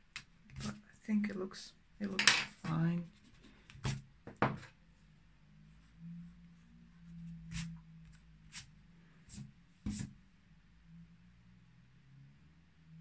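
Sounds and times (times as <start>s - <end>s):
faint low hum: 0.4s - 13.0s.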